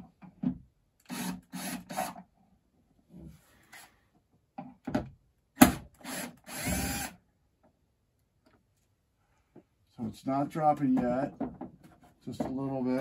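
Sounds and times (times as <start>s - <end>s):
cordless drill running: 1.1s - 2.2s, 6.0s - 7.2s.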